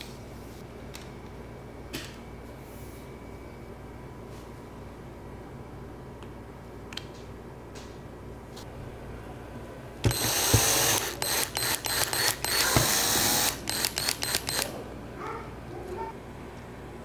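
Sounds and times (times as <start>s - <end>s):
cordless drill driving a screw: 10.1s - 14.7s.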